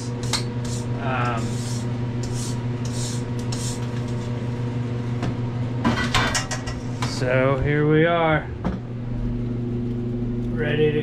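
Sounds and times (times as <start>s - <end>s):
brush scratching oven floor: 0.0s - 4.5s
steady low hum: 0.0s - 11.0s.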